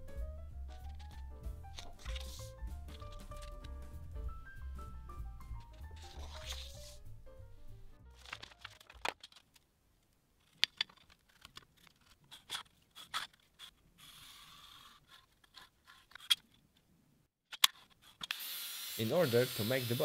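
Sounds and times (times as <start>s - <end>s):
background music: 0.0s - 8.8s
marker pen scratching: 0.8s - 3.6s, 5.6s - 7.0s, 12.3s - 16.2s.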